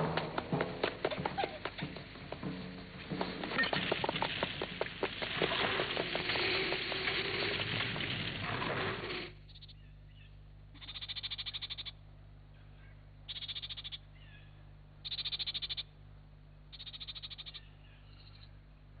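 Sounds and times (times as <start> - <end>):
loud hissing: 3.5 - 9.4
faint chirps: 9.4 - 12.0
frog pulsing trill: 10.8 - 12.0, 15.0 - 15.9, 16.7 - 17.6.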